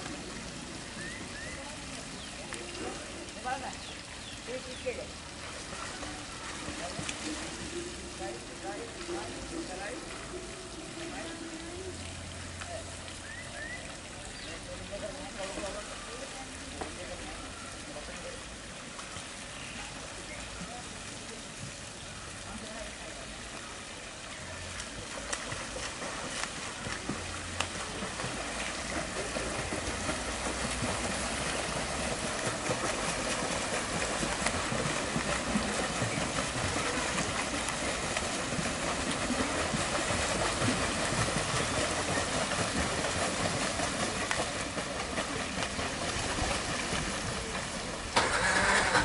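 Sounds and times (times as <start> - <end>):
children splashing in a pool: 0.0 - 8.3, 24.4 - 49.0.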